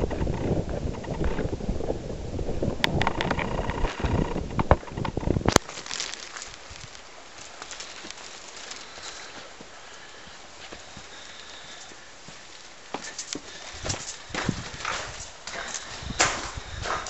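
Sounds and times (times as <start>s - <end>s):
wind buffeting microphone: 0.0s - 12.4s, 13.4s - 17.0s
footsteps on rocky ground: 3.7s - 17.0s.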